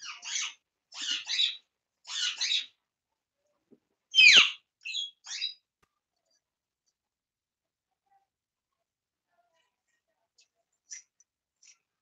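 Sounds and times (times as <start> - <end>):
parakeet squawk: 0.0 - 2.8, 4.1 - 5.6
parakeet chirps: 4.1 - 5.6.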